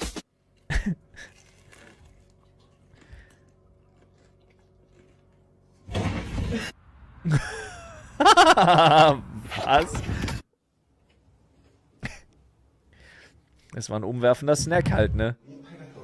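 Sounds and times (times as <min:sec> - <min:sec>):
loud crash of something falling: 0:05.9 - 0:07.4.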